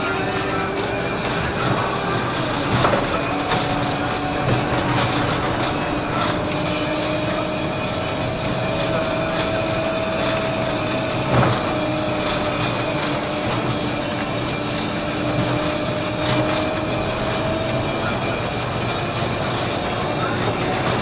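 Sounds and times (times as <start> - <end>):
bus drive noise with whine: 0.0 - 21.0.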